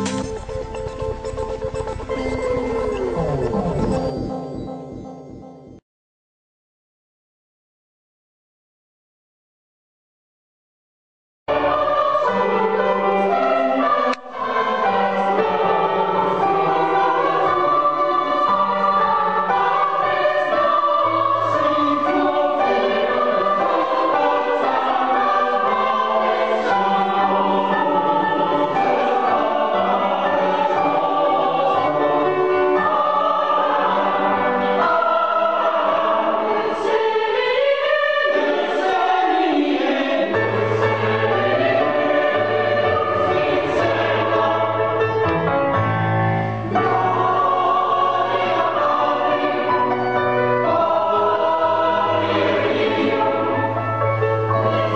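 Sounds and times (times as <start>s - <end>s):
mixed choir singing: 0.0s - 1.0s, 11.5s - 45.8s, 46.6s - 54.9s.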